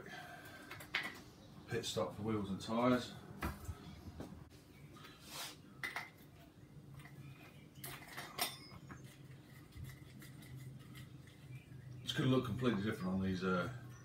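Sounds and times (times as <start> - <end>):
hand tools clinking and knocking: 7.8 - 11.1.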